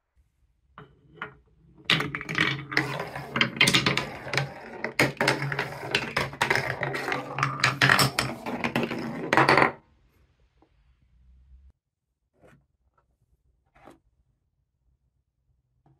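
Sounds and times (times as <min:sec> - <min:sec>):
marble rolling on rails: 0:00.8 - 0:09.8.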